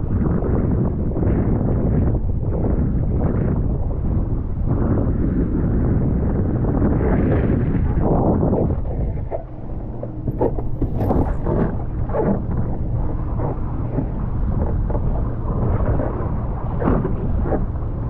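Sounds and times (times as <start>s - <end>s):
wind buffeting microphone: 0.0s - 18.0s
water splashing against board: 9.2s - 16.2s.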